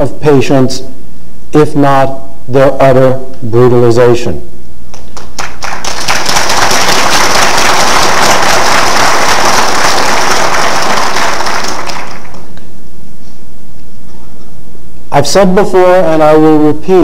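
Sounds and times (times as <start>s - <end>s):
audience applauding: 5.0s - 12.6s.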